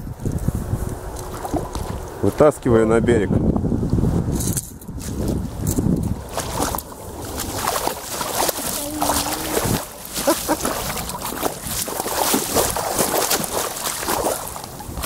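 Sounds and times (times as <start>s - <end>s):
fish splashing in shallow water: 0.9s - 2.2s, 5.0s - 15.0s.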